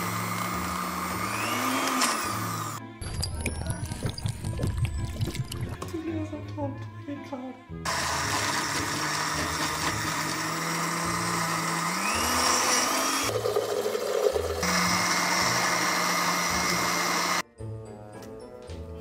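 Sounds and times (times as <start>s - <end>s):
blender running: 0.0s - 2.8s, 7.9s - 17.4s.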